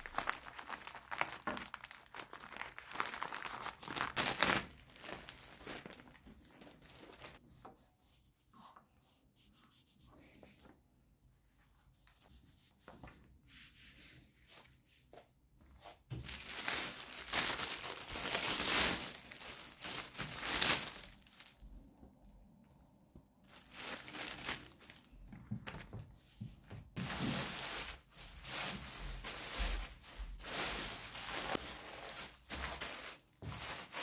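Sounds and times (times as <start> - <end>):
crinkling and tearing: 0.0 - 7.4, 16.2 - 21.7, 23.4 - 25.8.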